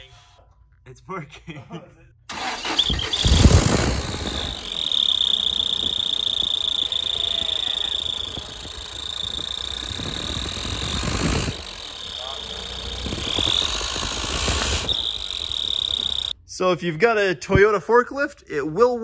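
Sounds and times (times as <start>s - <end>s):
forklift engine revving: 2.3s - 16.4s
high-pitched exhaust whistle: 2.5s - 16.4s.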